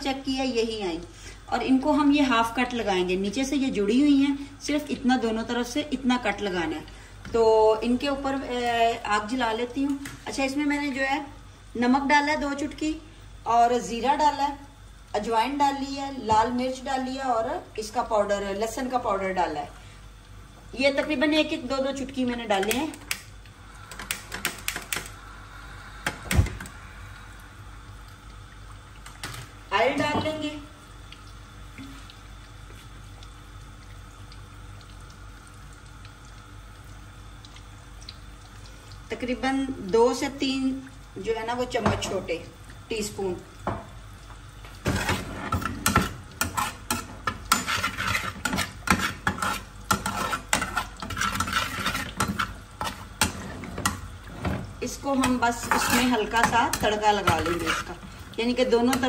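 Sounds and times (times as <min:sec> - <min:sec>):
gas stove hiss: 0:00.0 - 0:32.0
oil sizzling: 0:04.6 - 0:59.0
spoon scraping metal pan: 0:44.9 - 0:53.5, 0:55.2 - 0:58.0.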